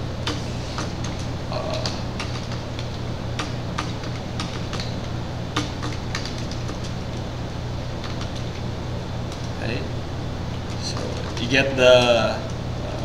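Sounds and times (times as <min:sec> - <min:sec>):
steady low hum: 0:00.0 - 0:13.0
keyboard keys clicking: 0:00.2 - 0:07.3, 0:07.9 - 0:08.7.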